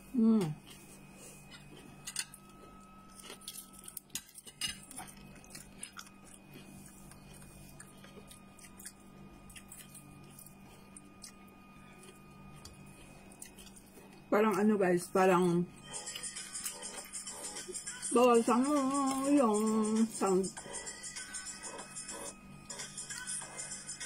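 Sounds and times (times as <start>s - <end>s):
steady low hum: 0.0s - 24.0s
chewing: 0.6s - 14.7s, 15.3s - 17.8s.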